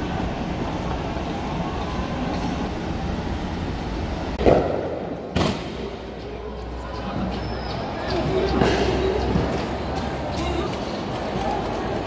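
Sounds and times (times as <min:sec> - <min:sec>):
crowded street rumble: 0:00.0 - 0:12.0
loud bang: 0:04.4 - 0:06.0.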